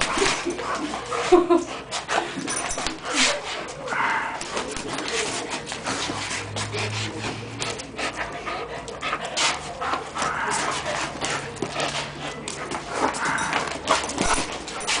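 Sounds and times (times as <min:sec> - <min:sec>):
dog panting: 0:00.0 - 0:15.0.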